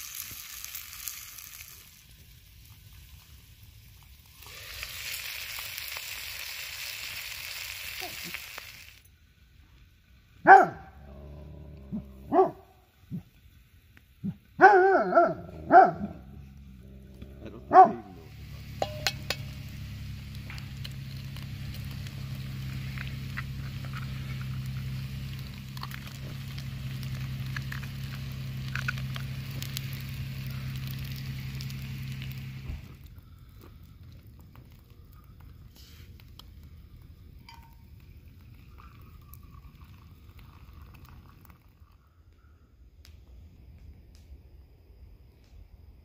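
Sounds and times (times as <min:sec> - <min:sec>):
food sizzling in pan: 0:00.0 - 0:10.5, 0:16.4 - 0:33.1
dogs barking and yelping: 0:10.5 - 0:11.0, 0:14.2 - 0:16.3, 0:17.6 - 0:18.3.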